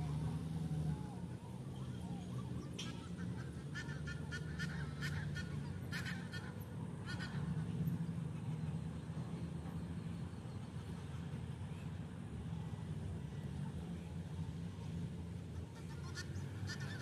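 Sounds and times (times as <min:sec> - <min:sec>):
geese honking: 0:02.8 - 0:07.6, 0:15.7 - 0:17.0.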